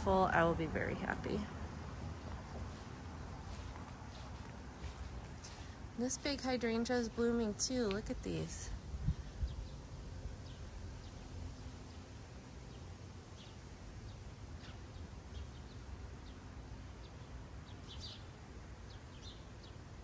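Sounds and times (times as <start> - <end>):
low outdoor rumble: 0.0 - 20.0
birds chirping: 1.3 - 12.1.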